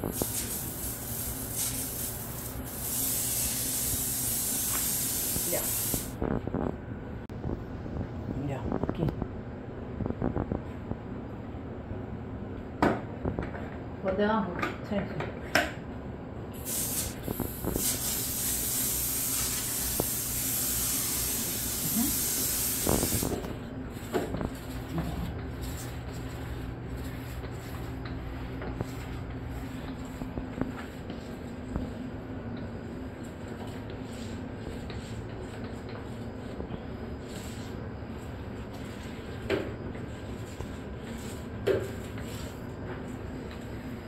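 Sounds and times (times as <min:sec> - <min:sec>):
sprayer hissing onto tile floor: 0:00.0 - 0:06.2, 0:16.6 - 0:24.6.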